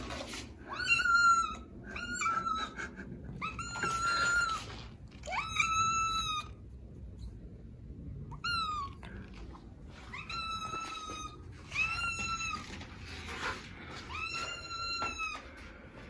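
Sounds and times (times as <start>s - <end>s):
kitten meowing: 3.4s - 6.6s, 8.3s - 9.2s, 10.1s - 12.7s.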